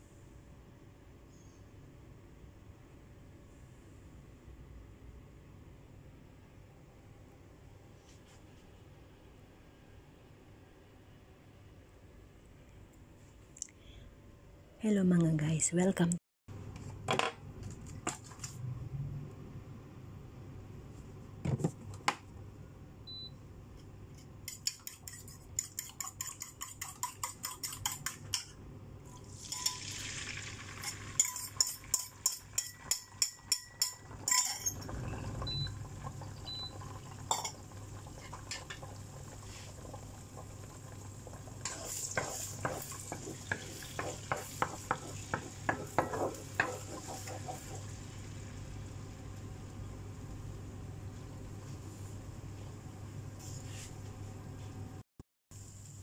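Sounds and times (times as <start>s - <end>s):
fork clicking and scraping in bowl: 24.2s - 28.6s, 30.8s - 34.7s.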